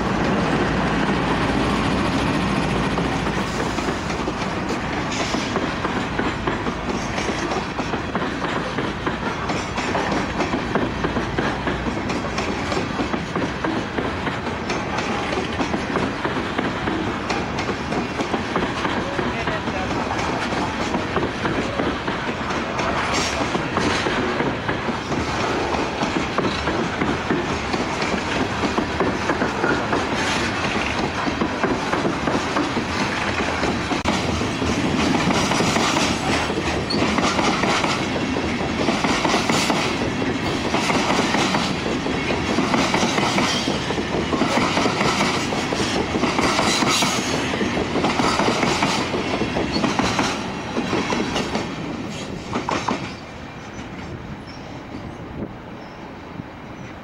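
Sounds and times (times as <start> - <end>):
wheels clattering over rail joints: 0.0 - 54.6
freight train rolling past: 0.0 - 57.0.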